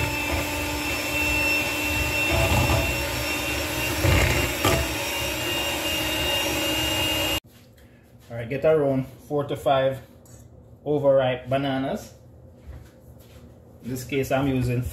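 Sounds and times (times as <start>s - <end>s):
electric hand mixer running: 0.0s - 7.4s.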